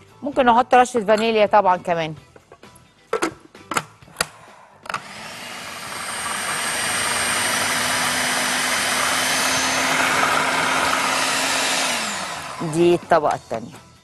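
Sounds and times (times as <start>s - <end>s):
food processor motor humming: 4.9s - 12.8s.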